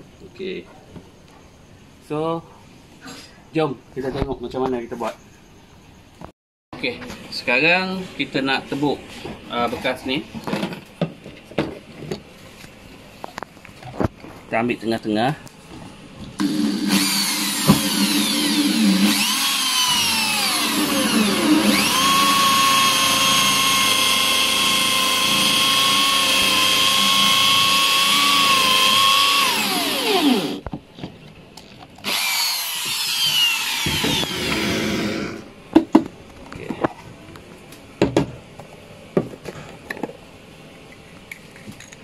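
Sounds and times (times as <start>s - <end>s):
electric drill boring plastic: 16.4s - 30.6s, 32.0s - 35.4s.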